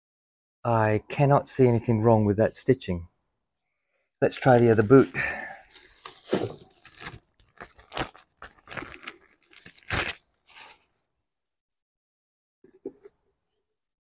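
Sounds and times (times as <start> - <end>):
plastic bag crinkling: 4.6 - 10.9.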